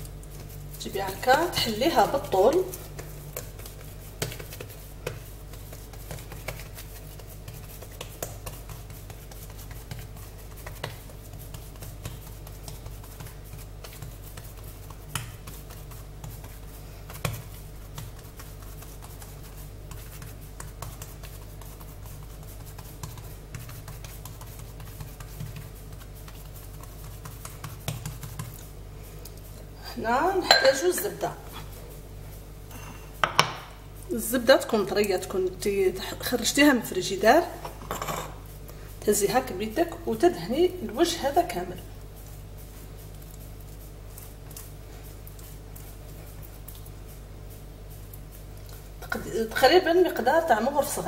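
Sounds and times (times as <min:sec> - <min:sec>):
hands patting dough: 0:00.0 - 0:32.4, 0:33.1 - 0:51.0
steady low hum: 0:00.0 - 0:51.0
sharp knocks on countertop: 0:33.2 - 0:33.8.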